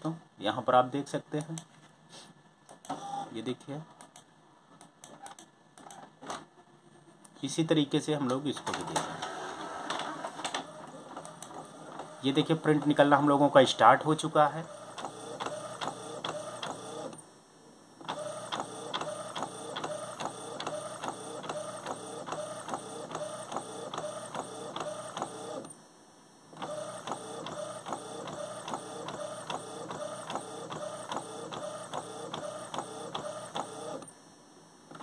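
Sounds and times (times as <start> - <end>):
inkjet printer ticking and whirring: 2.9 - 3.3, 8.7 - 13.6, 14.2 - 17.2, 18.0 - 25.8, 26.6 - 34.1.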